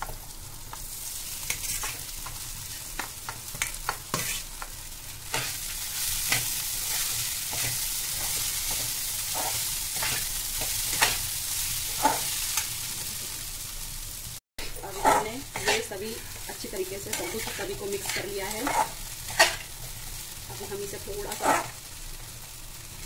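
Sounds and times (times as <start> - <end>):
hot oil sizzling: 0.0 - 23.0
metal spatula scraping pan: 1.4 - 11.3, 11.9 - 12.7, 14.7 - 19.8, 21.2 - 21.8.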